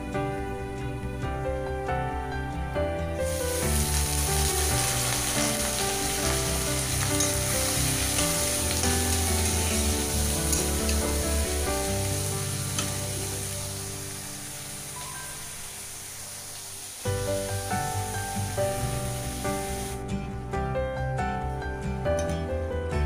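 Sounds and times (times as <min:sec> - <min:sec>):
background music: 0:00.0 - 0:23.0
cabbage sizzling in oil: 0:03.3 - 0:20.0.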